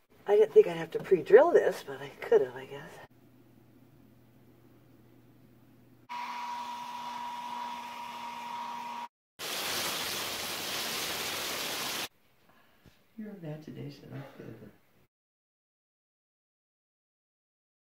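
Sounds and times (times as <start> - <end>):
faint room hum: 0.1 - 6.1
hail on deck and metal furniture: 9.4 - 12.1.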